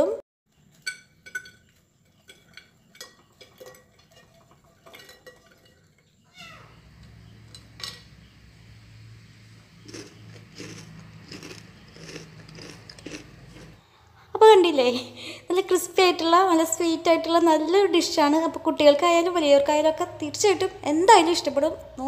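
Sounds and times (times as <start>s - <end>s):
bread cubes clattering onto plate: 9.9s - 13.7s.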